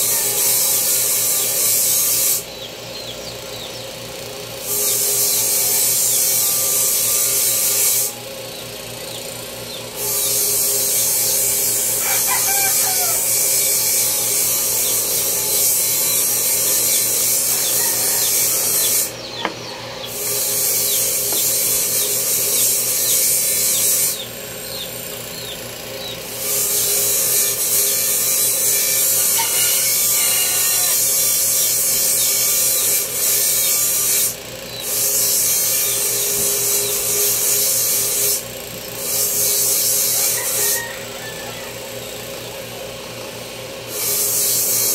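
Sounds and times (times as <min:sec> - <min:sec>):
hand tool sanding wood: 0:09.9 - 0:24.3
chickens clucking: 0:12.0 - 0:13.4, 0:16.9 - 0:22.7.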